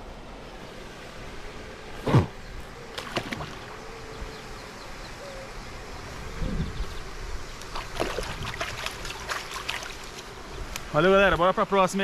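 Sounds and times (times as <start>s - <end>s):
water splashing: 2.9s - 3.8s, 7.6s - 10.4s.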